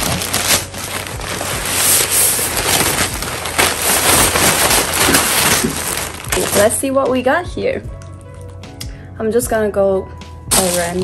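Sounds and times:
plastic mailer bag crinkling: 0.0s - 6.9s, 10.5s - 11.0s.

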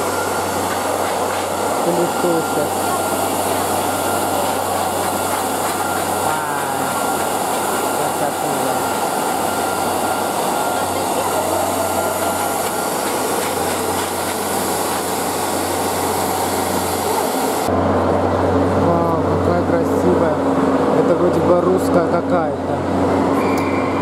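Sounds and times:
pet grooming dryer blowing: 0.0s - 17.7s
crowd chatter in a hall: 1.5s - 14.2s.

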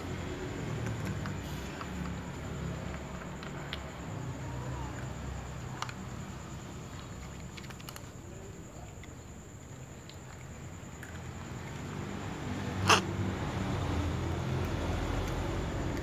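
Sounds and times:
cats crunching dry kibble: 0.5s - 4.2s, 4.9s - 12.4s.

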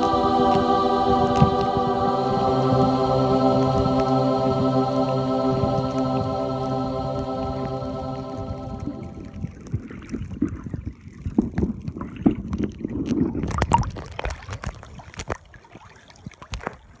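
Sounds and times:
low rumble: 0.0s - 9.7s
water sloshing and splashing: 8.8s - 17.0s.

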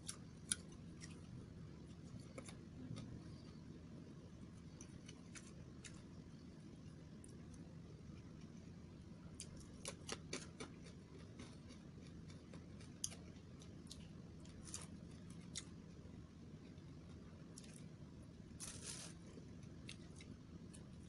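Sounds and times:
low room hum: 0.0s - 21.0s
person chewing crunchy food: 9.4s - 15.8s.

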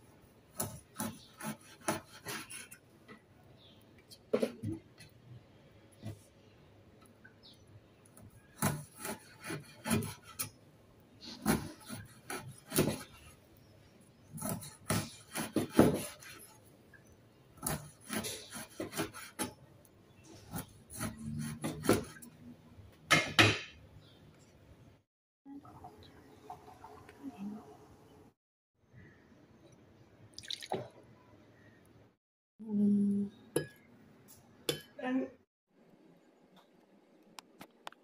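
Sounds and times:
cleaver cutting fish on board: 0.5s - 2.8s, 8.6s - 10.6s, 11.2s - 13.3s, 14.4s - 16.6s, 17.6s - 19.6s, 20.5s - 22.3s.

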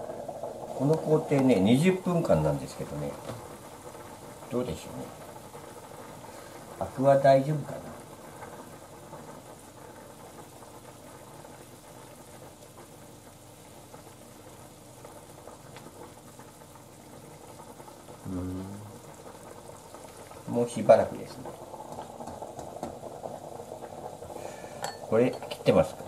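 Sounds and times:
water bubbling in a saucepan: 0.0s - 26.0s
person humming: 18.2s - 19.0s.

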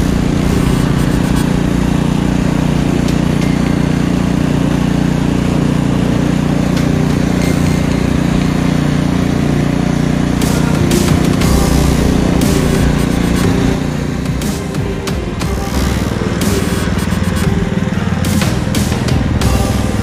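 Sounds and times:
snowblower engine running: 0.0s - 20.0s.

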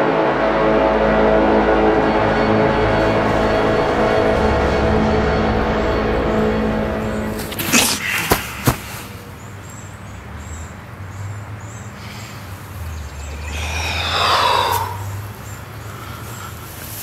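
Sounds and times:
man dropping onto grass: 7.3s - 9.3s.

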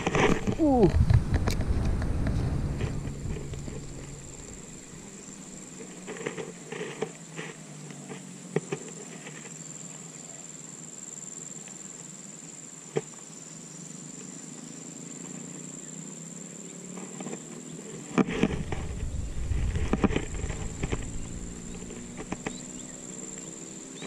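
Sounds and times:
high-pitched insect drone: 2.4s - 6.6s, 18.5s - 24.0s.

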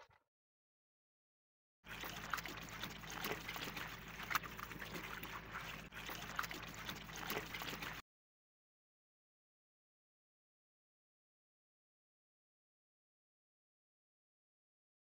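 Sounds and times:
water running and splashing: 1.9s - 8.0s.

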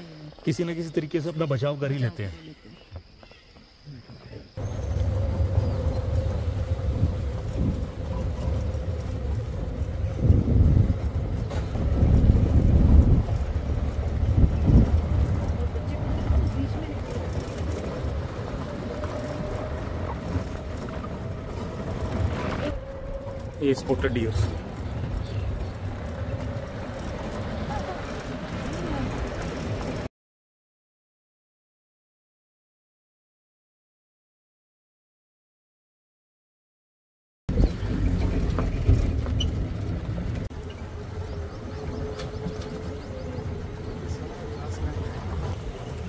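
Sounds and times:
vehicle engine rumble: 2.6s - 30.1s, 37.5s - 46.0s.

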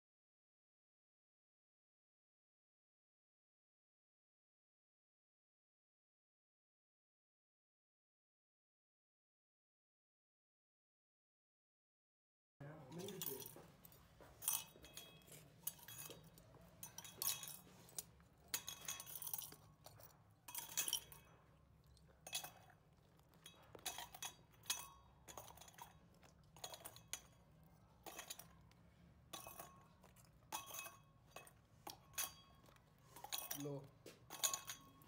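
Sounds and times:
metal clinks and taps: 12.7s - 35.0s.

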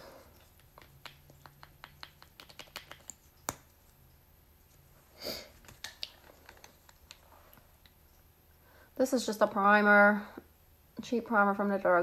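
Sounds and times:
plastic tubes clicking and tapping: 0.4s - 3.7s, 5.6s - 8.0s.

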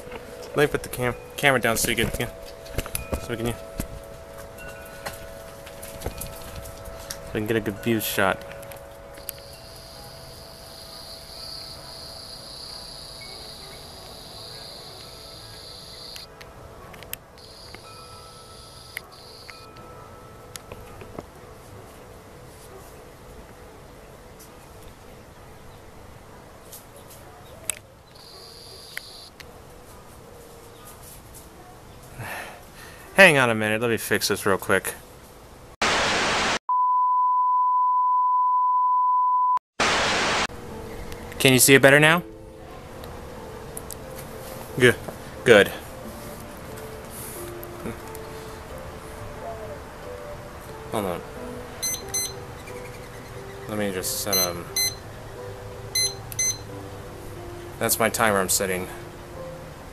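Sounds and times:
insect buzzing song: 9.0s - 16.3s, 17.4s - 19.7s, 28.2s - 29.4s
television static hiss: 35.8s - 36.6s, 39.8s - 40.9s
test-tone beep: 51.8s - 52.4s, 54.3s - 55.0s, 56.0s - 56.7s.

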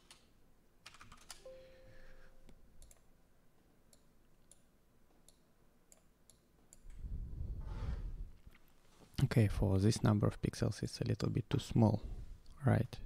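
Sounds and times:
computer mouse clicking: 2.8s - 3.1s, 3.9s - 7.0s.

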